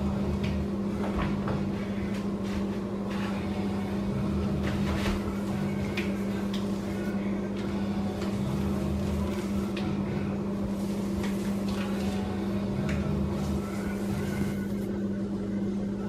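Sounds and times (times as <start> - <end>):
steady low hum: 0.0 - 16.0
paint roller sticky crackles: 10.8 - 12.3.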